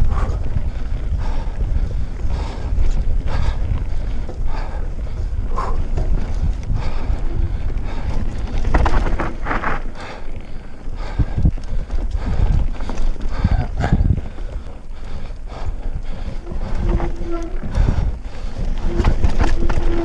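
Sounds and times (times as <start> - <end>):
bike chain and frame clattering: 0.0 - 20.0
wind buffeting microphone: 0.0 - 20.0
tyre rumble on dirt: 7.5 - 10.2, 16.4 - 20.0.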